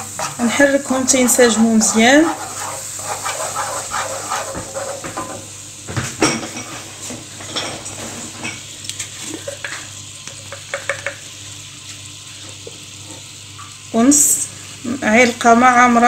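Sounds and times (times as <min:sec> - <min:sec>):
wooden spoon scraping a pan: 0:00.0 - 0:05.5
spoon knocking on pan: 0:10.4 - 0:11.3.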